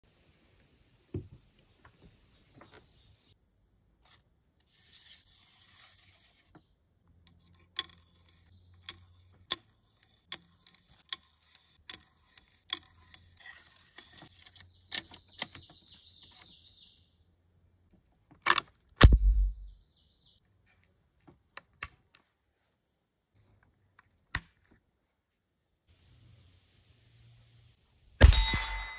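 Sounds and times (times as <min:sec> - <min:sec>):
loud gunshot: 0:19.0 - 0:19.7, 0:28.2 - 0:28.9.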